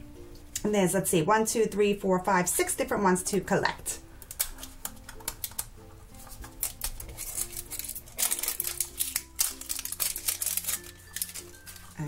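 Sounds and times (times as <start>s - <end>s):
background music: 0.0s - 12.0s
plastic wrap crackling and tearing: 4.2s - 12.0s.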